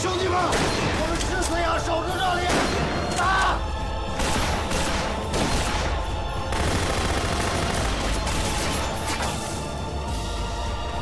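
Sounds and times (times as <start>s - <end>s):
rapid gunfire: 4.1s - 9.2s.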